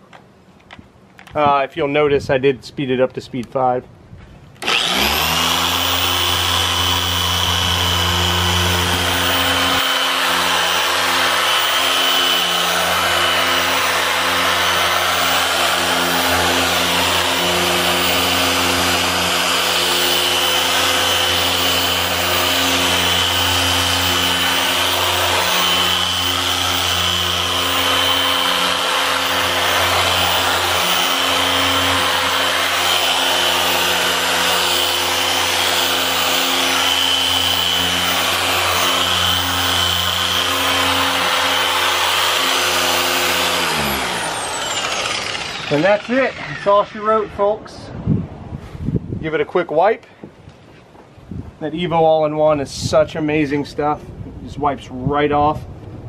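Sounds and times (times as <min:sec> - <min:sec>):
orbital polisher motor whine: 0:04.6 - 0:47.6.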